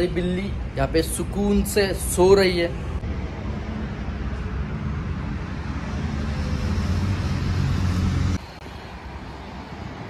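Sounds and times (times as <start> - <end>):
road traffic rumble: 0.0 - 10.0
low engine drone: 4.0 - 8.9.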